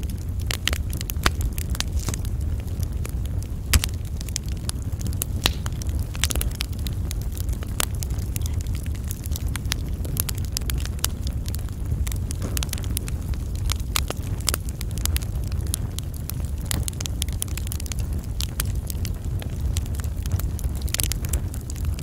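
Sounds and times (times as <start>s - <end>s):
low rumble: 0.0s - 15.8s
wood fire crackling and popping: 0.0s - 22.0s.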